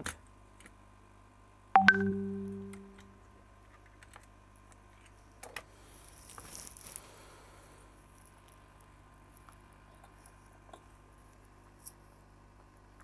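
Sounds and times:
short pitched ringing tone: 1.8 - 3.2.

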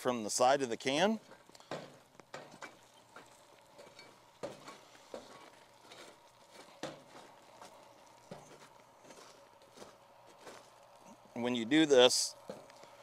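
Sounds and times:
light crackle: 0.0 - 13.0
spade scraping charcoal on foil: 1.2 - 9.4.

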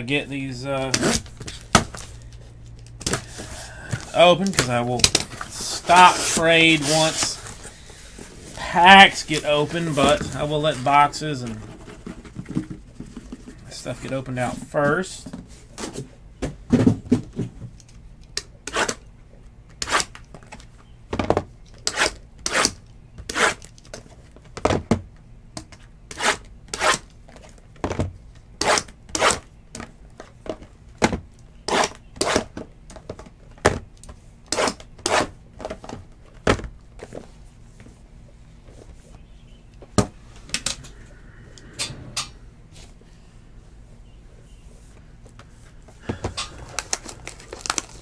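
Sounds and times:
cardboard and plastic wrap crinkling: 3.1 - 13.3, 46.1 - 48.0.

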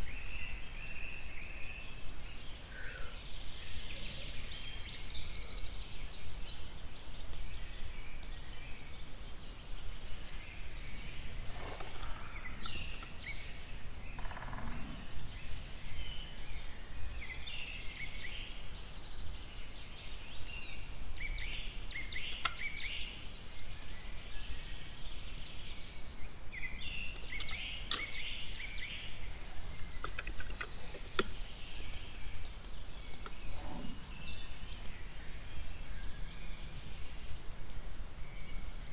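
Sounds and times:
background hiss: 0.0 - 38.9
sharp clicks: 29.9 - 33.5.

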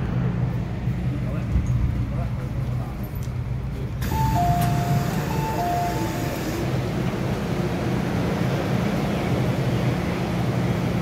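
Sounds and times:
low train hum: 0.0 - 11.0
train doors opening rush: 0.0 - 11.0
two-note door chime: 4.1 - 6.4.

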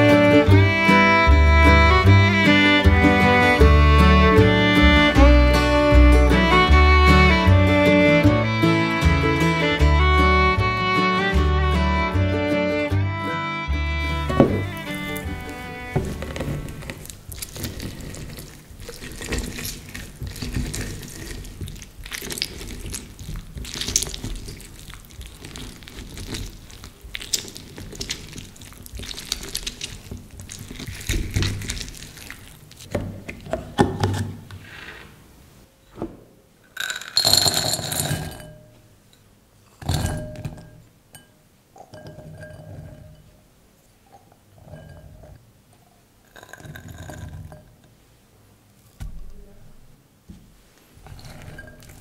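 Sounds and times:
pouring into glass bowl: 14.3 - 32.9, 36.8 - 38.6, 46.2 - 47.8, 51.0 - 52.0
wet squishing on citrus reamer: 14.7 - 33.8.

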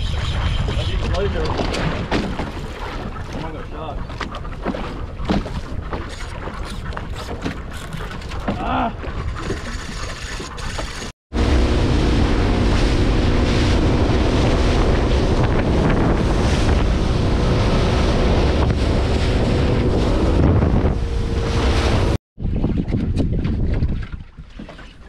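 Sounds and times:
rushing water: 1.2 - 22.2
boat engine drone: 9.4 - 22.2
wind buffeting microphone: 11.4 - 24.6.

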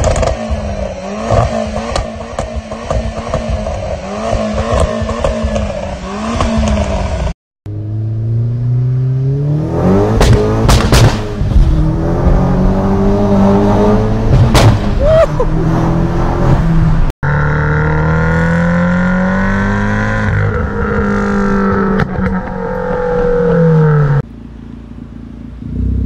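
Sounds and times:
car engine revving: 0.0 - 26.0
exhaust crack: 10.0 - 12.4, 14.2 - 15.2
car engine idling: 24.1 - 26.0.

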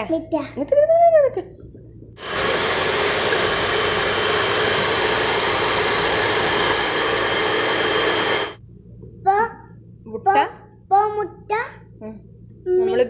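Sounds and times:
electric hand mixer whisking: 2.2 - 8.6.

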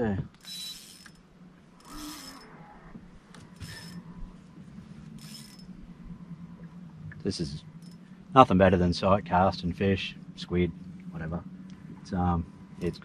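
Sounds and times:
low steady hum: 0.0 - 13.0
spinning reel being wound: 0.4 - 1.2, 1.8 - 2.6, 3.5 - 4.1, 5.2 - 5.7.

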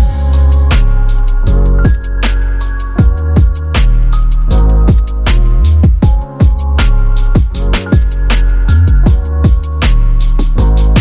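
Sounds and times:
deep sliding bass notes: 0.0 - 11.0
drum beat: 3.0 - 3.9, 4.9 - 8.2, 8.9 - 9.8.

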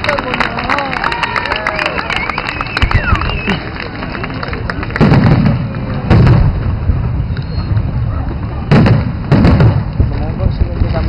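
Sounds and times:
rolling low rumble: 2.4 - 11.0
firework bangs: 4.6 - 11.0.

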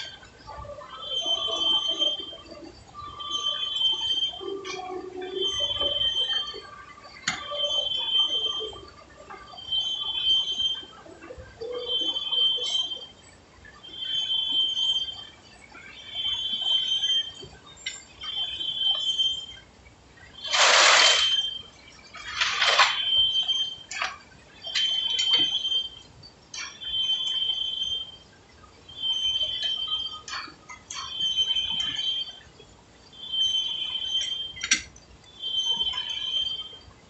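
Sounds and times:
high-pitched squeal: 20.4 - 23.9.

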